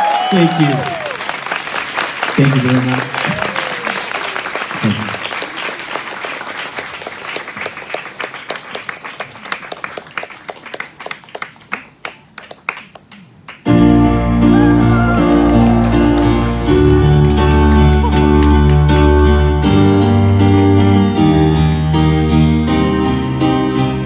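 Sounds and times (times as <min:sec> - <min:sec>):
audience applause: 0:00.0 - 0:13.6, 0:14.5 - 0:20.4
keyboard chords: 0:13.7 - 0:24.0.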